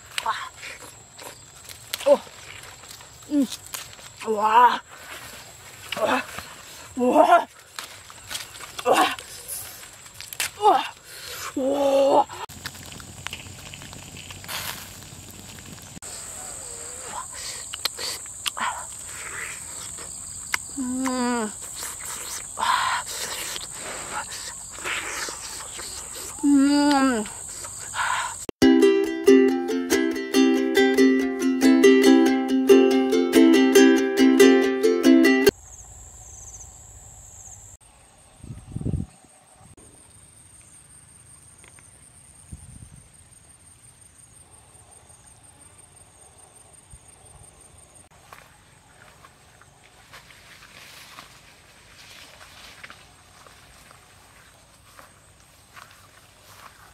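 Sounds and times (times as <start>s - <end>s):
crickets chirring: 0.0s - 56.9s
high-pitched insect drone: 16.0s - 29.0s
woman humming mmm: 20.7s - 27.7s.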